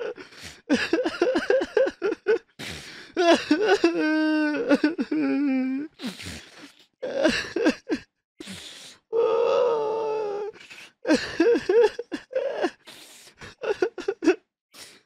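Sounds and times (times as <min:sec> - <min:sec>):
person sobbing: 0:00.0 - 0:06.0, 0:07.0 - 0:08.1, 0:09.2 - 0:12.8, 0:13.4 - 0:14.4.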